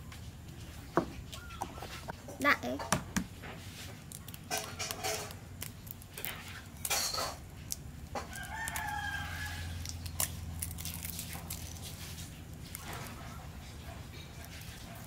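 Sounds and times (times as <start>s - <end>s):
eggshell cracking: 4.0s - 13.2s
rooster crowing: 8.2s - 9.9s.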